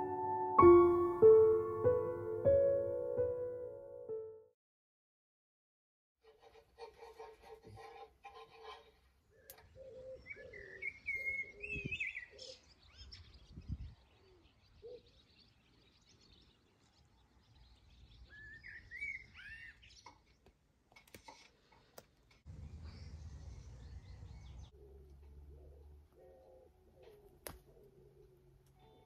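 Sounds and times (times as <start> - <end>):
birds chirping: 9.2 - 20.5, 21.8 - 29.0
lower bird calls: 9.3 - 15.4, 18.2 - 20.3.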